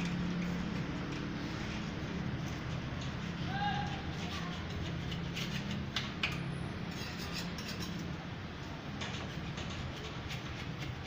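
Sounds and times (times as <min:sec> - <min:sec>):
scraper scratching paint off metal: 0:00.0 - 0:08.2, 0:09.0 - 0:11.0.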